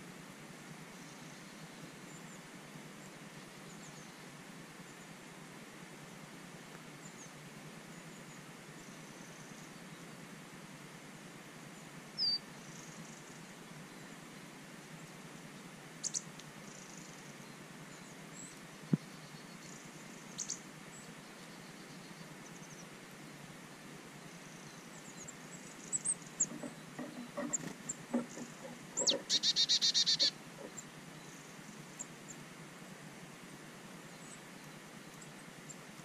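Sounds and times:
songbirds chirping: 0:00.0 - 0:36.0
bird trilling: 0:26.4 - 0:30.8.

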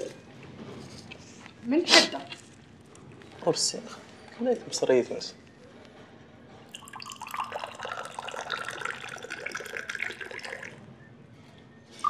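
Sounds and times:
tea pouring into a glass: 0:06.7 - 0:10.8.

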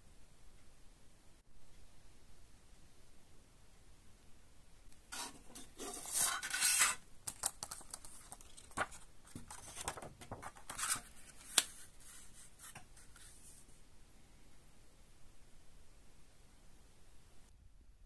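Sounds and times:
paper rustling and crinkling: 0:05.2 - 0:13.6.

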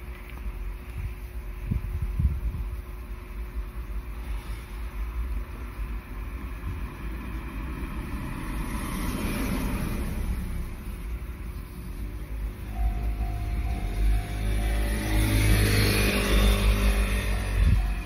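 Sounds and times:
wind rumble on microphone: 0:00.9 - 0:02.9, 0:06.5 - 0:07.1, 0:15.7 - 0:18.0
car driving past: 0:07.2 - 0:11.0, 0:12.7 - 0:18.0.

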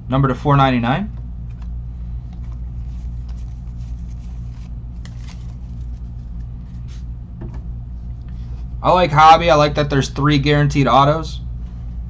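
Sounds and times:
steady low hum: 0:00.0 - 0:12.0
trading cards rustling and tapping: 0:01.2 - 0:07.6.

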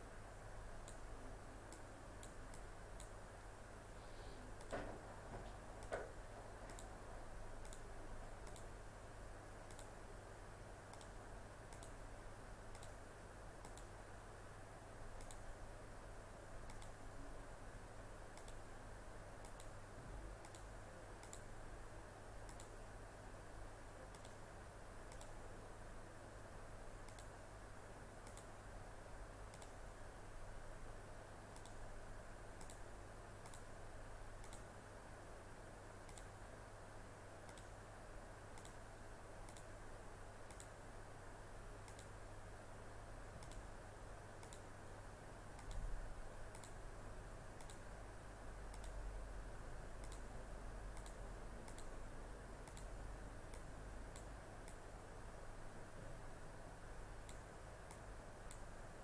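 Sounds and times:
faint low hum: 0:00.0 - 0:59.0
computer mouse clicking: 0:00.8 - 0:01.0, 0:01.7 - 0:03.2, 0:04.6 - 0:04.9, 0:05.8 - 0:06.9, 0:07.6 - 0:08.7, 0:09.7 - 0:10.0, 0:10.9 - 0:12.0, 0:12.7 - 0:13.0, 0:13.6 - 0:14.0, 0:15.2 - 0:15.5, 0:16.7 - 0:17.0, 0:18.4 - 0:18.6, 0:19.4 - 0:19.8, 0:20.4 - 0:21.5, 0:22.4 - 0:22.8, 0:24.1 - 0:24.4, 0:25.0 - 0:25.4, 0:27.0 - 0:27.3, 0:28.2 - 0:28.6, 0:29.5 - 0:29.8, 0:31.5 - 0:31.8, 0:32.6 - 0:33.7, 0:34.4 - 0:34.7, 0:36.1 - 0:36.3, 0:37.4 - 0:37.8, 0:38.6 - 0:38.8, 0:39.4 - 0:39.8, 0:40.4 - 0:40.8, 0:41.8 - 0:42.2, 0:43.4 - 0:43.7, 0:44.4 - 0:44.7, 0:45.6 - 0:45.9, 0:46.5 - 0:46.8, 0:47.6 - 0:47.9, 0:48.7 - 0:49.0, 0:50.0 - 0:50.3, 0:50.9 - 0:52.0, 0:52.6 - 0:54.8, 0:57.2 - 0:58.7.

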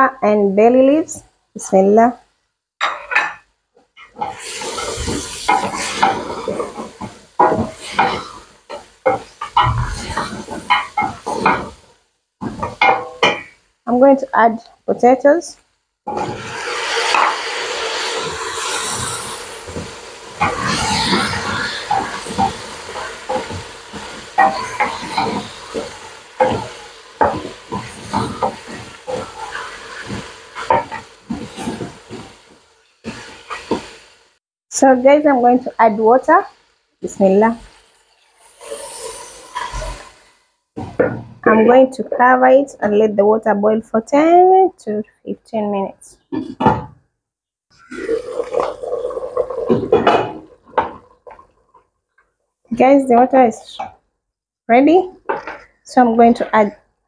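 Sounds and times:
light frying sizzle: 0:04.0 - 0:14.1, 0:15.0 - 0:41.0.

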